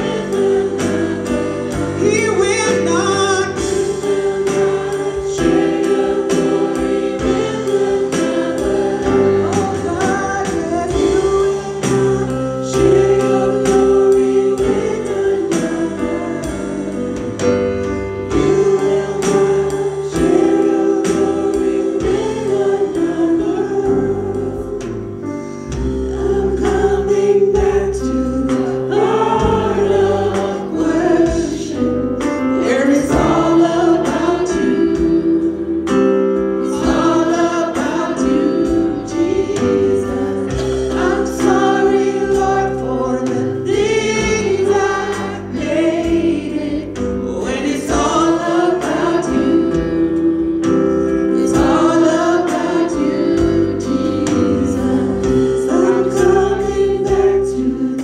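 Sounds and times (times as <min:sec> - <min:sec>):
drum kit beat: 0:00.0 - 0:58.0
keyboard: 0:00.0 - 0:58.0
voices singing: 0:00.0 - 0:58.0.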